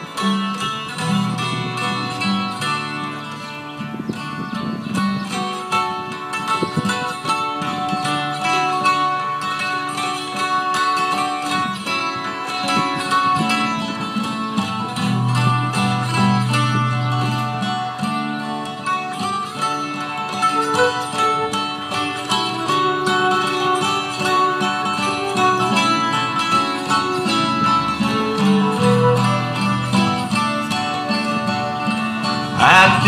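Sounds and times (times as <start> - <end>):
acoustic folk band playing: 0.0 - 33.0
acoustic guitar: 0.0 - 33.0.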